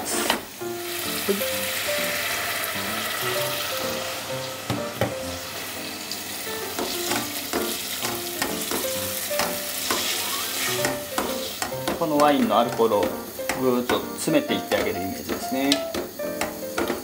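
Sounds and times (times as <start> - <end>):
wine sizzling in hot pot: 0.0 - 17.0
wooden spoon knocking pot: 6.7 - 10.1, 10.8 - 17.0.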